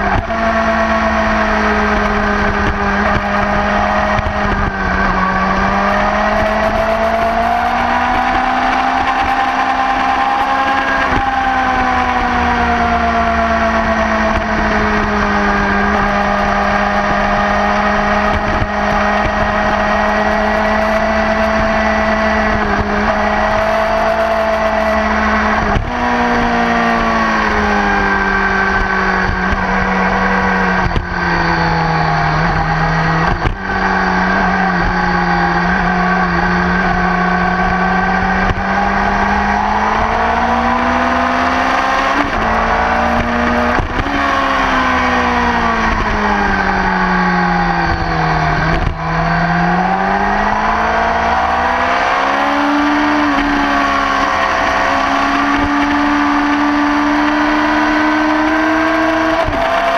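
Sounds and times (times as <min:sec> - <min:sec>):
motorcycle engine at speed: 0:00.0 - 0:59.9
wind noise: 0:00.0 - 0:59.9.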